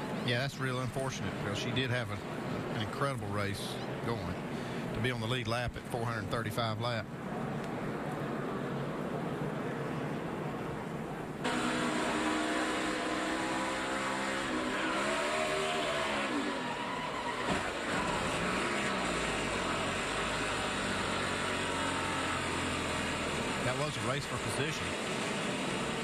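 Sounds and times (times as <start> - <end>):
race car engine revving: 11.4 - 26.0.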